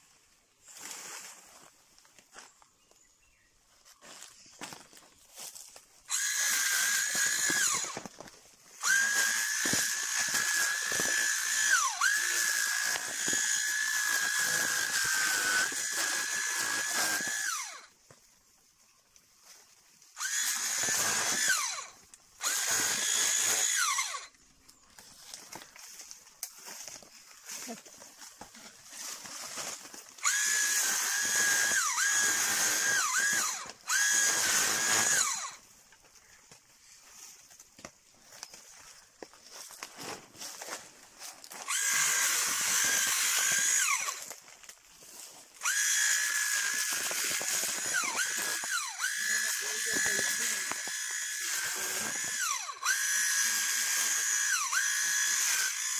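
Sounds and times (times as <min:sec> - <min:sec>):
motor whine: 0:08.8 - 0:17.9.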